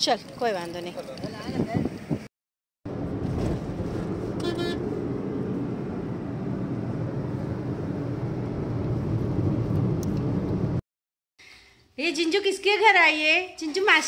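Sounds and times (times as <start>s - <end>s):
car cabin road and engine noise: 2.9s - 10.8s
car horn toot: 4.4s - 4.9s.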